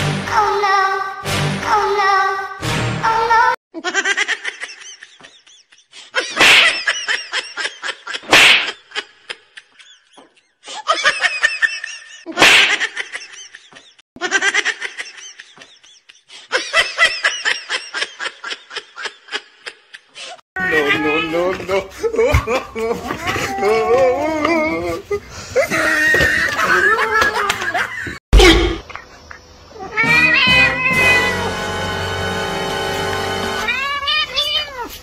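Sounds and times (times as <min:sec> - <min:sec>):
people laughing: 0:03.8 - 0:20.1, 0:20.7 - 0:29.4
sharp loud sounds: 0:08.3 - 0:08.8.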